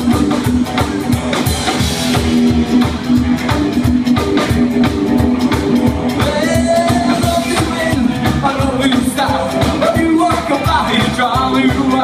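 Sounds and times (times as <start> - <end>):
rockabilly band playing: 0.0 - 12.0
person singing: 6.1 - 12.0.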